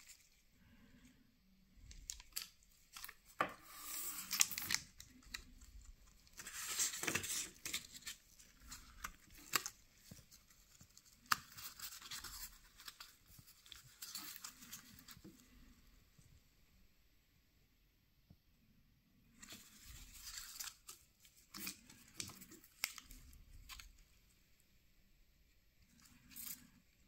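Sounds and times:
plastic and paper packaging crinkling: 0:01.9 - 0:15.5, 0:19.4 - 0:24.1.

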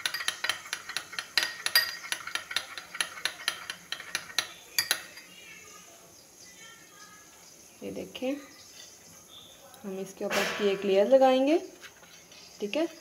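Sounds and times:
utensil scraping glass bowl: 0:00.0 - 0:05.2.

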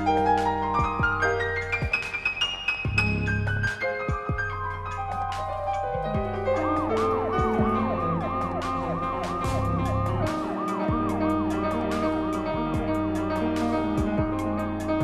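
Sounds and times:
fast yelping siren: 0:00.0 - 0:15.0
music with drum hits: 0:00.0 - 0:15.0.

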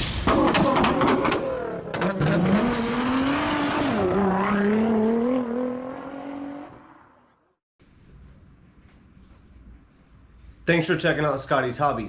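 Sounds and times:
car engine revving: 0:00.4 - 0:07.4.

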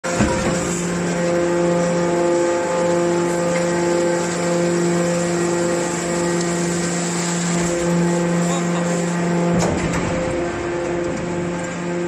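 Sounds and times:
baler motor humming: 0:00.0 - 0:12.0.

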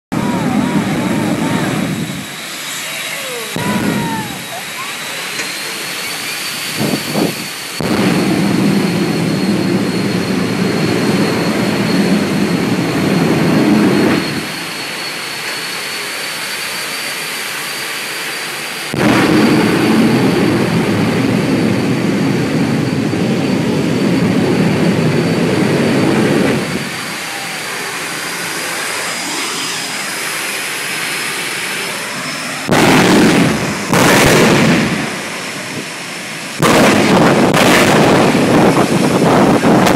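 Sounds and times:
very loud blasts: 0:00.1 - 0:14.6, 0:18.9 - 0:39.9
turbine engine whine: 0:00.1 - 0:39.9.

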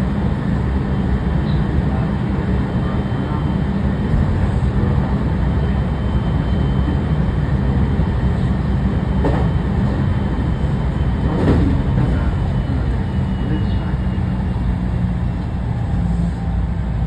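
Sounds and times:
train running rumble: 0:00.0 - 0:17.0
train clatters: 0:07.8 - 0:15.9.

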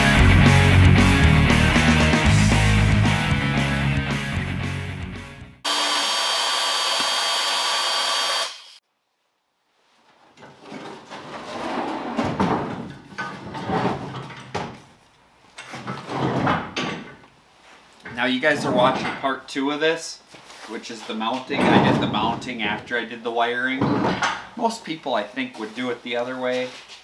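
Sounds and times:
rock guitar music: 0:00.0 - 0:05.6
tools clunking and rustling: 0:12.2 - 0:17.3, 0:18.0 - 0:19.3, 0:21.3 - 0:22.9, 0:23.7 - 0:24.6.

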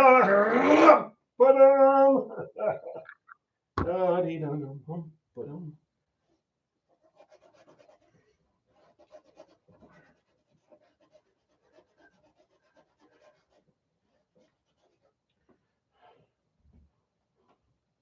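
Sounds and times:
paintbrush scratching on canvas: 0:06.2 - 0:15.3.

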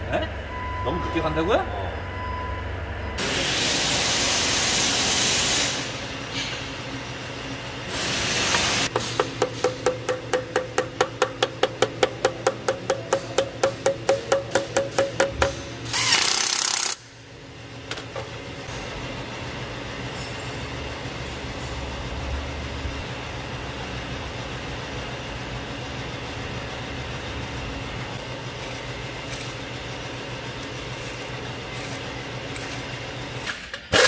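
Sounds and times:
hammer striking metal: 0:08.9 - 0:15.7.

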